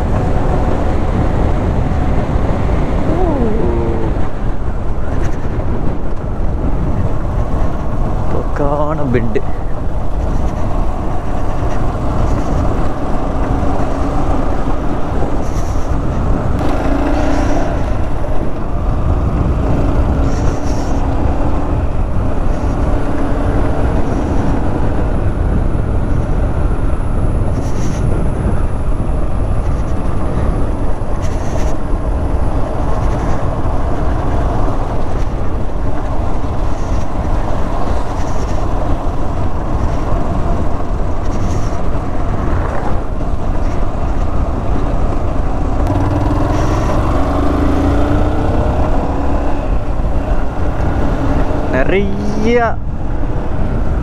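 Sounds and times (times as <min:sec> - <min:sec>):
wind rushing over the microphone: 0:00.0 - 0:54.0
motorcycle engine running: 0:44.7 - 0:51.7.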